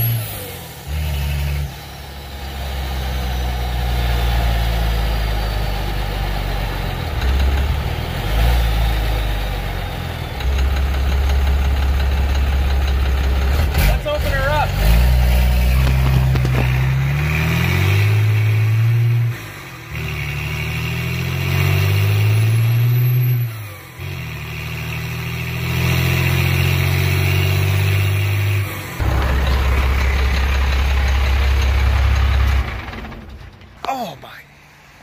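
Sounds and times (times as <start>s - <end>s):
truck engine accelerating: 0.0s - 35.0s.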